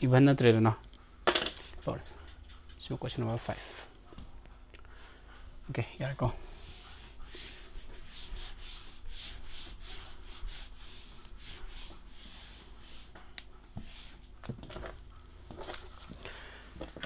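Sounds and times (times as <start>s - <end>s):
eraser rubbing on whiteboard: 6.6s - 14.4s.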